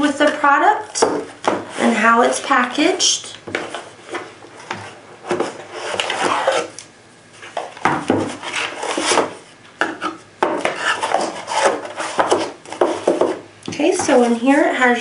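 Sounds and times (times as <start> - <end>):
cardboard scraping and rubbing: 3.6 - 6.8, 7.4 - 13.4.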